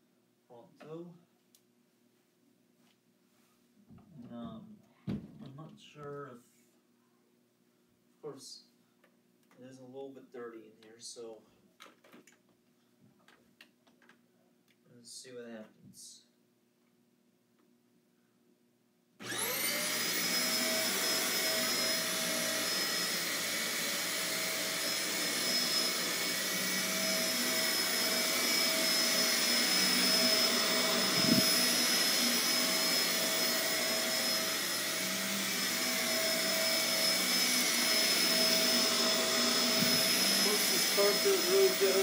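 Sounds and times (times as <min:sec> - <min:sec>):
vacuum cleaner motor whining: 0:19.2 - 0:42.0.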